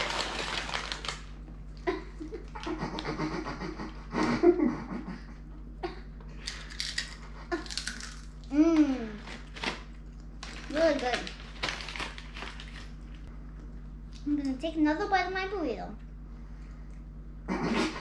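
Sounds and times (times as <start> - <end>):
paper chip bag rustling: 0.0 - 1.3, 9.0 - 13.2
girl laughing: 1.8 - 6.1.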